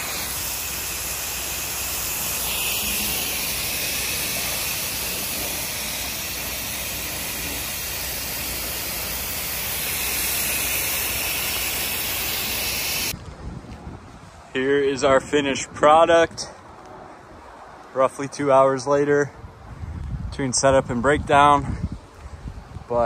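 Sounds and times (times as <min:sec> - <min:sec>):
water spraying from nozzle: 0:00.0 - 0:13.2.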